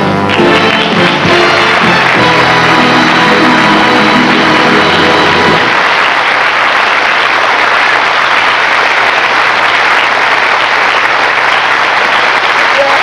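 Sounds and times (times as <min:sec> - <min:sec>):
music: 0:00.0 - 0:05.9
studio audience applauding: 0:00.0 - 0:13.0.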